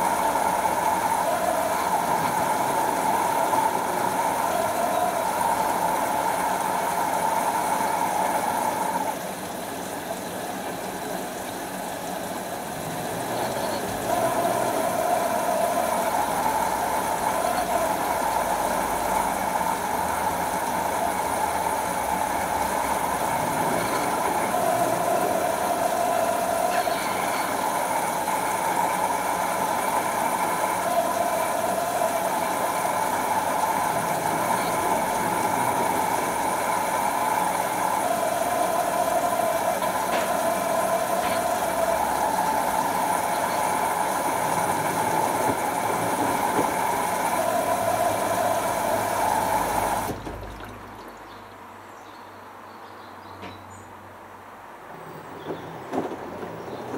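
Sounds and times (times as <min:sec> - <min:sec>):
washing machine drum tumbling: 0:11.3 - 0:51.4.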